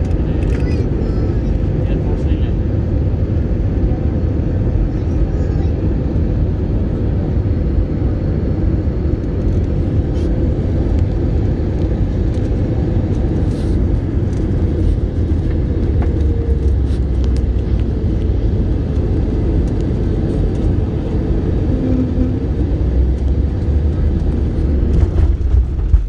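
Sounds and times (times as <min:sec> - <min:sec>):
jet engines rumbling in cabin: 0:00.0 - 0:26.0.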